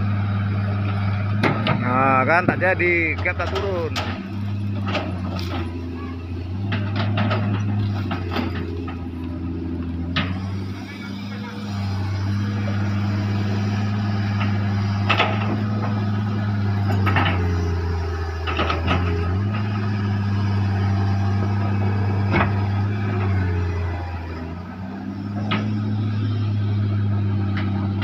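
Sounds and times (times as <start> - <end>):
excavator diesel engine straining: 0.0 - 28.0
grapple and logs clanking: 0.7 - 28.0.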